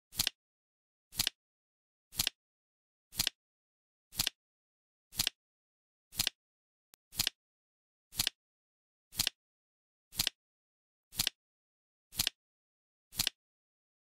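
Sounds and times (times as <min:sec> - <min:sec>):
flip clock card-flap clicks: 0:00.1 - 0:00.4, 0:01.2 - 0:01.4, 0:02.1 - 0:02.4, 0:03.1 - 0:03.4, 0:04.2 - 0:04.4, 0:05.2 - 0:05.4, 0:06.2 - 0:06.4, 0:07.2 - 0:07.4, 0:08.2 - 0:08.4, 0:09.2 - 0:09.4, 0:10.2 - 0:10.4, 0:11.2 - 0:11.4, 0:12.2 - 0:12.4, 0:13.2 - 0:13.4.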